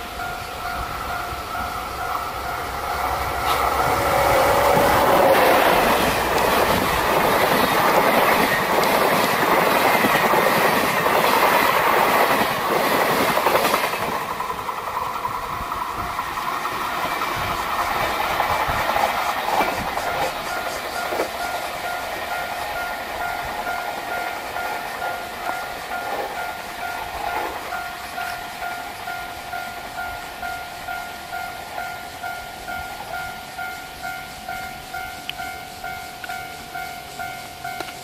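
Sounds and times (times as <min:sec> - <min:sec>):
level-crossing bell ringing: 0:00.0 - 0:03.4, 0:20.1 - 0:38.0
train passing: 0:00.0 - 0:38.0.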